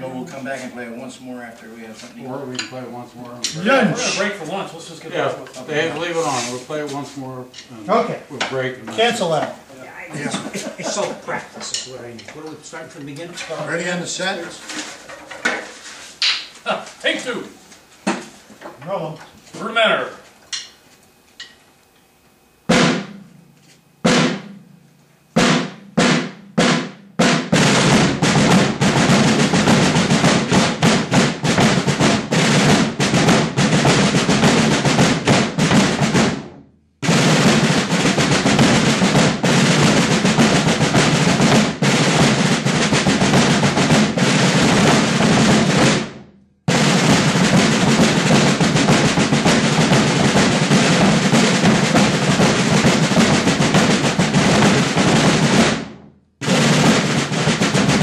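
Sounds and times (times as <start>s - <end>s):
drum line playing: 8.9s - 14.9s, 22.6s - 24.8s, 25.4s - 58.0s.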